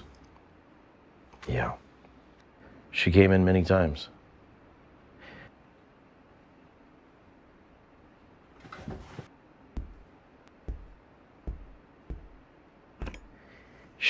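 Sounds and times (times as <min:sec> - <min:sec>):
footsteps: 0:08.6 - 0:13.3.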